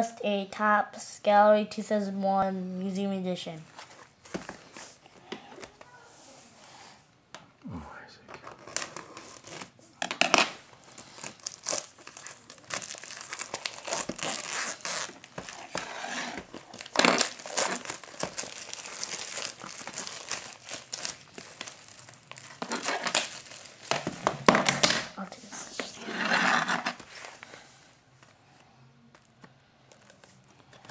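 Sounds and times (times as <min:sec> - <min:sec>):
plastic wrap crinkling and tearing: 0:08.4 - 0:27.6, 0:29.2 - 0:30.9.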